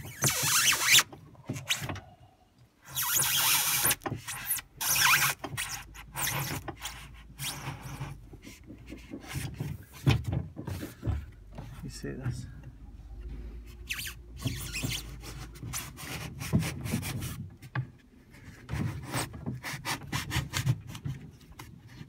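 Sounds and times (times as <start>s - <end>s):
knife sawing through foam: 18.9s - 21.0s.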